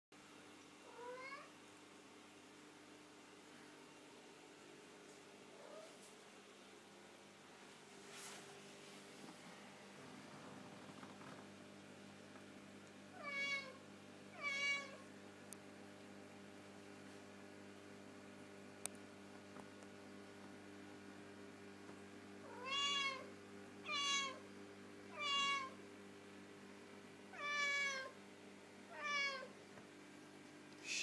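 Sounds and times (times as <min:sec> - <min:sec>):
cat meowing: 0:00.9 - 0:01.5, 0:13.2 - 0:13.8, 0:14.4 - 0:15.0, 0:22.5 - 0:24.4, 0:25.1 - 0:25.8, 0:27.3 - 0:28.1, 0:28.9 - 0:29.5.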